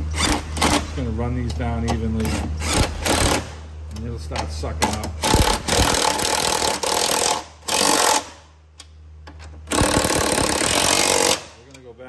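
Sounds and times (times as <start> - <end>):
impact gun bursts: 5.2 - 8.4, 9.7 - 11.6.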